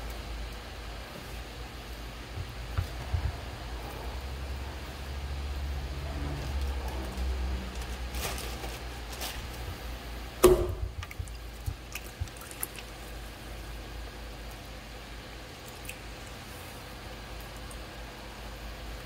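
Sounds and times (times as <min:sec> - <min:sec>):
pottery wheel motor hum: 0:00.0 - 0:19.0
wet clay squishing: 0:06.4 - 0:13.6
heavy thump: 0:10.4 - 0:11.0.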